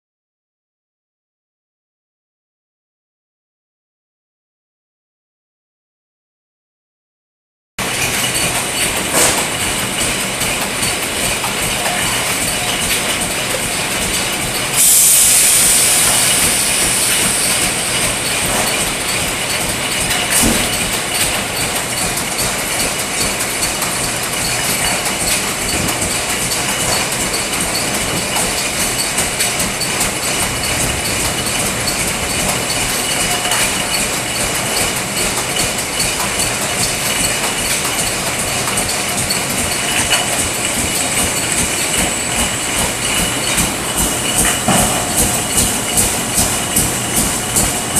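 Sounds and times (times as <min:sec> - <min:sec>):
aerosol cans rattling on conveyor: 0:07.8 - 0:47.9
loud hiss: 0:14.8 - 0:17.9.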